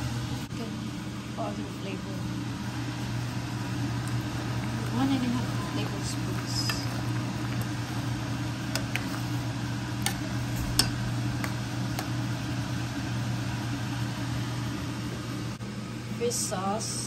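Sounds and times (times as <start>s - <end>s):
low hum: 0.0s - 16.2s
spoon stirring soup in pot: 8.6s - 9.4s.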